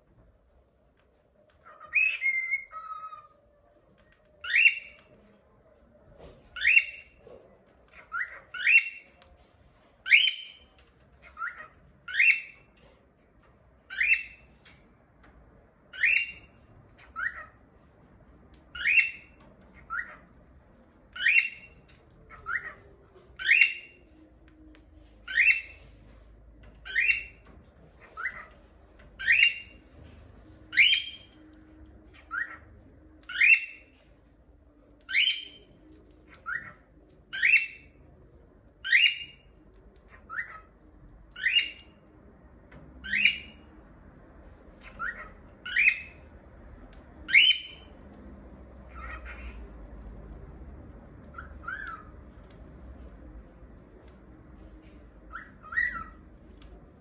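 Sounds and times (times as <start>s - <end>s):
cockatiel calling: 1.5s - 3.4s, 4.0s - 5.2s, 6.6s - 7.3s, 7.9s - 9.2s, 10.0s - 12.8s, 13.9s - 14.5s, 15.9s - 17.6s, 18.7s - 20.4s, 21.1s - 24.1s, 25.2s - 25.9s, 26.8s - 29.8s, 30.6s - 34.0s, 34.9s - 38.0s, 38.8s - 41.9s, 43.0s - 43.7s, 44.8s - 46.3s, 47.2s - 48.0s, 48.8s - 49.8s, 51.3s - 52.6s, 55.1s - 56.7s.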